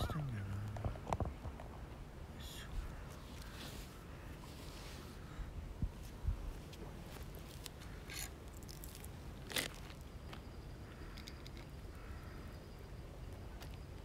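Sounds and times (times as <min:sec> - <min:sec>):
handling clicks and scrapes: 0:07.2 - 0:09.8.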